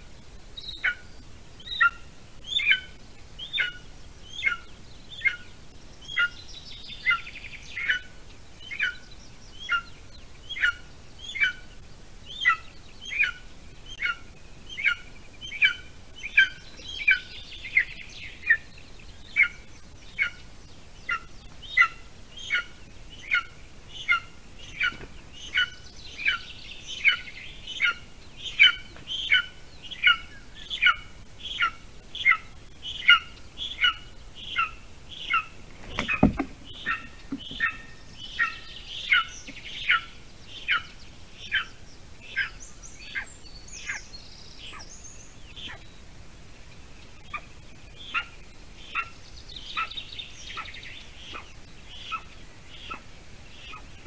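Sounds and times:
eaglet begging calls: 0:47.2 - 0:54.0.

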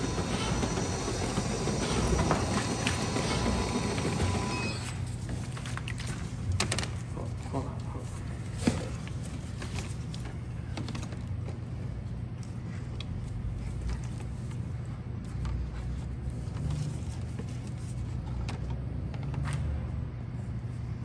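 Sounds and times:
low machine hum: 0:00.0 - 0:21.0.

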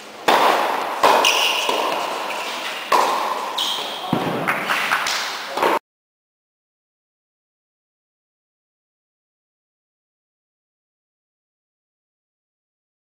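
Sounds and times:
racket striking tennis ball: 0:00.2 - 0:05.8.

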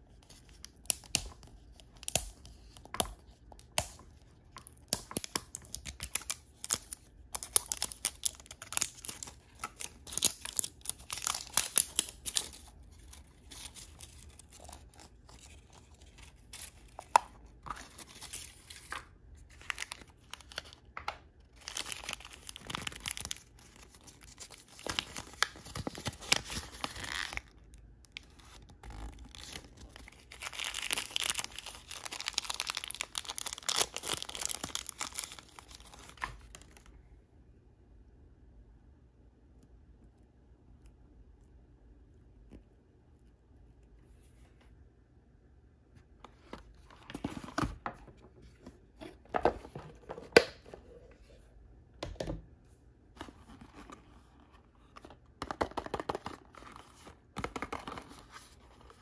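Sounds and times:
plastic packaging crinkling: 0:03.6 - 0:36.9.

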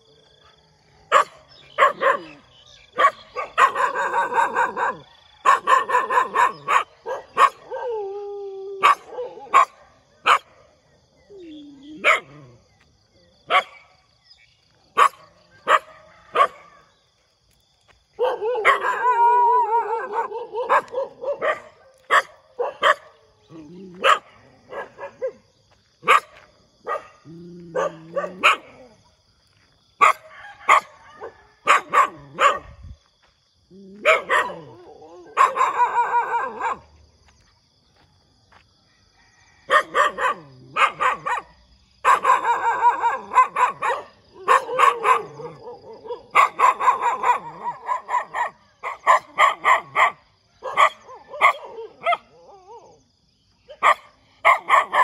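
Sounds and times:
dog barking: 0:00.4 - 0:07.9, 0:08.8 - 0:10.8, 0:12.0 - 0:12.5, 0:13.5 - 0:13.9, 0:15.0 - 0:16.9, 0:18.2 - 0:23.2, 0:23.9 - 0:29.0, 0:30.0 - 0:32.8, 0:33.9 - 0:36.9, 0:39.7 - 0:52.4, 0:53.7 - 0:55.0.

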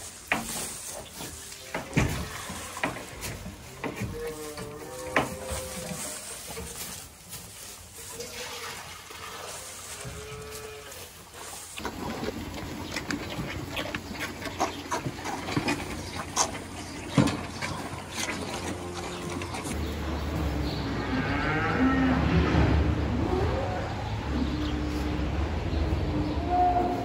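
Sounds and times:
calves mooing: 0:01.5 - 0:06.9, 0:09.2 - 0:11.1, 0:17.9 - 0:19.8, 0:20.9 - 0:25.3
knocks and clatter: 0:11.8 - 0:19.8.

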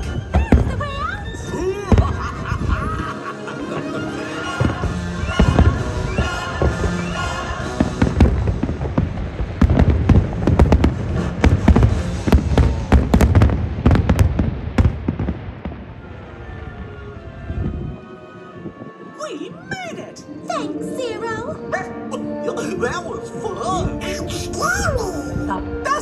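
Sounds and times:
fireworks bangs and booms: 0:00.0 - 0:18.0
show music: 0:01.5 - 0:14.2.

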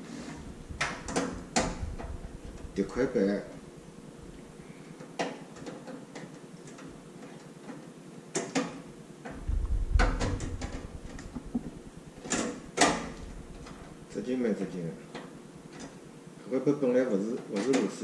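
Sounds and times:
dull low bump and rumble: 0:00.5 - 0:03.1, 0:09.4 - 0:12.0.

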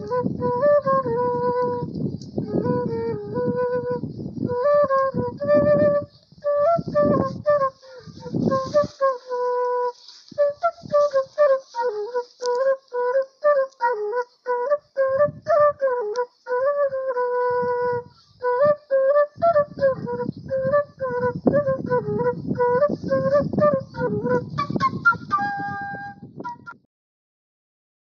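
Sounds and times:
wooden flute melody: 0:00.0 - 0:26.9.

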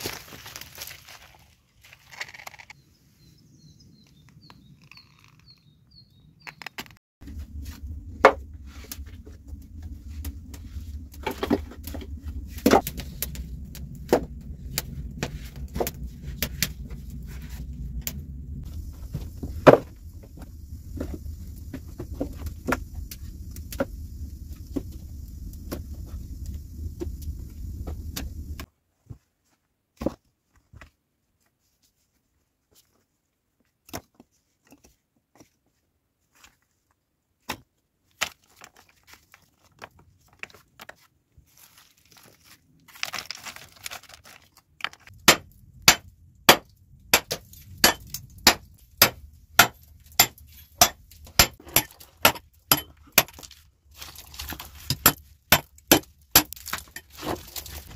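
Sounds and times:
steady low rumble: 0:07.2 - 0:28.7, 0:45.1 - 0:53.2
hammer striking rock: 0:45.3 - 0:53.4, 0:54.9 - 0:56.6.

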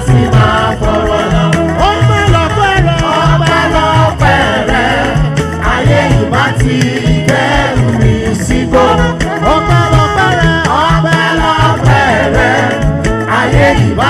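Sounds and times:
band with drums and keyboards: 0:00.0 - 0:14.0
person singing: 0:00.0 - 0:14.0.

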